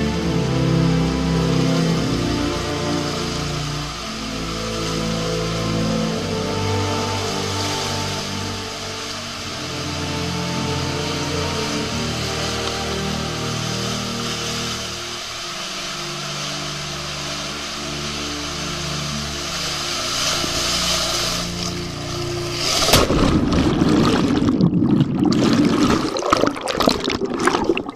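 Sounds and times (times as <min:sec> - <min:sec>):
water rushing: 0:00.0 - 0:27.9
underwater gurgling: 0:21.2 - 0:27.9
splash into pool: 0:22.4 - 0:27.9.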